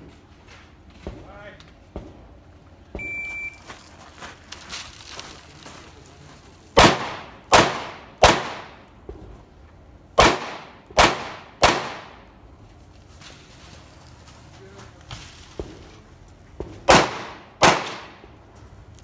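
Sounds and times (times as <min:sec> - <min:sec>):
rifle gunshots with echo: 0:06.8 - 0:08.9, 0:10.2 - 0:12.3, 0:16.9 - 0:18.3.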